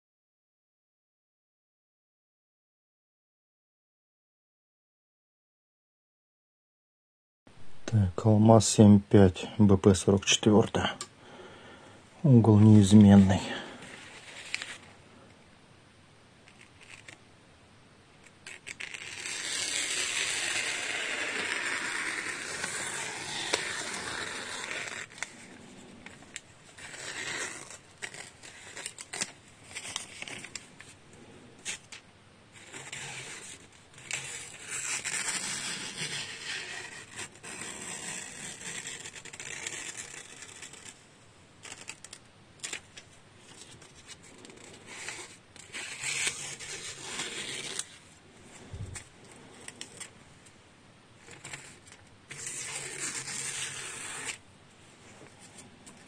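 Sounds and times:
knife slicing paper: 0:18.4 - 0:30.7, 0:32.6 - 0:41.0, 0:43.7 - 0:48.0, 0:51.2 - 0:54.4.

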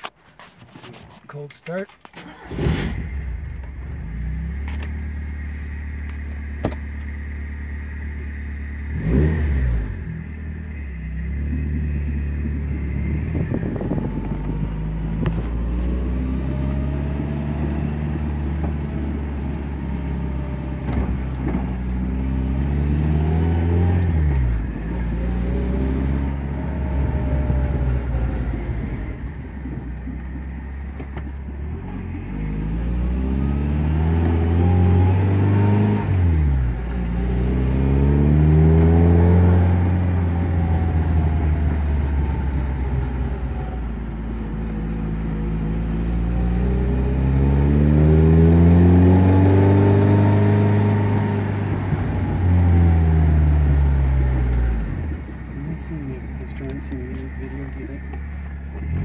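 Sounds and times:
car engine starting and idling: 0:00.0 - 0:59.0
car accelerating through gears: 0:08.9 - 0:10.2, 0:32.2 - 0:43.2, 0:45.5 - 0:55.1.

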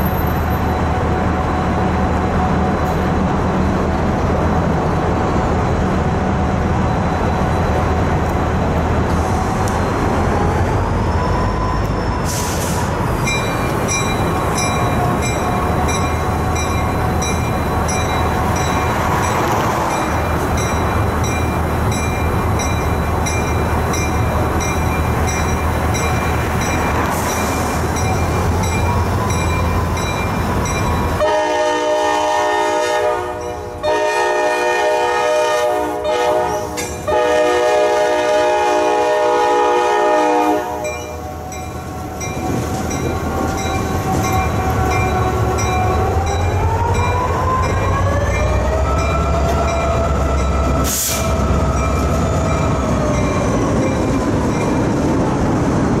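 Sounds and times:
diesel locomotive engine: 0:00.0 - 0:56.0
locomotive bell ringing: 0:13.2 - 0:31.5, 0:33.4 - 0:34.0, 0:40.7 - 0:50.8, 0:51.6 - 0:54.9
air horn blasts: 0:31.2 - 0:40.8.

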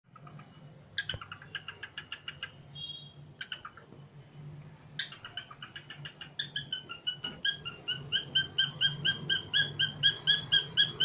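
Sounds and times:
cockatiel chirping: 0:00.1 - 0:04.0, 0:05.0 - 0:11.0.

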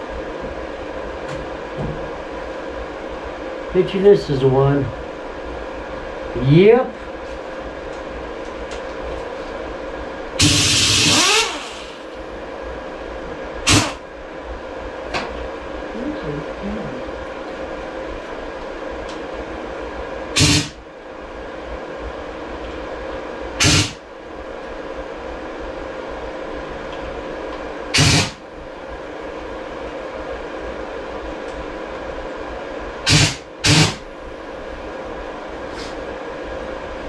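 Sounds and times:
background hum: 0:00.0 - 0:37.0
power tool bursts: 0:10.4 - 0:12.0, 0:13.7 - 0:14.0, 0:20.4 - 0:20.8, 0:23.6 - 0:24.0, 0:27.9 - 0:28.4, 0:33.1 - 0:34.0.

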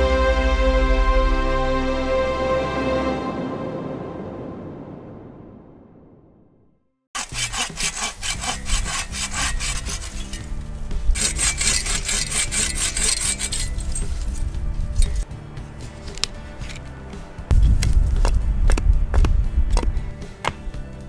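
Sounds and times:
hand saw cutting wood: 0:07.2 - 0:14.4.

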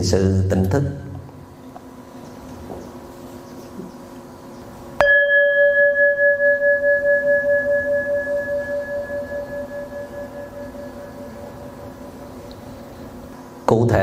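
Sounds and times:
meditation bell ringing: 0:05.0 - 0:13.2.

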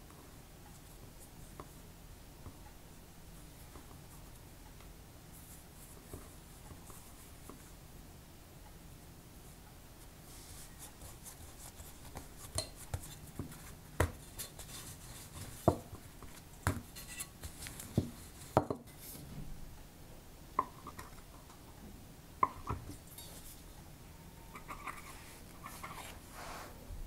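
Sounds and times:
rolling pin and blade tapping countertop: 0:15.5 - 0:16.0.

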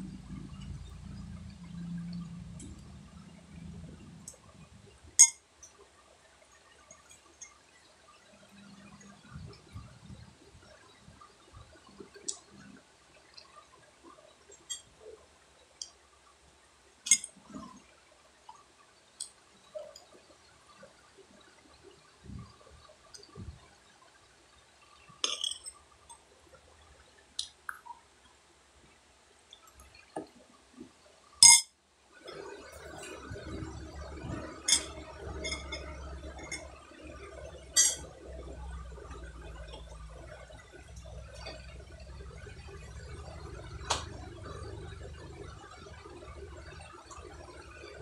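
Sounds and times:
low hum: 0:00.0 - 0:05.8, 0:06.4 - 0:16.2, 0:32.2 - 0:48.0.

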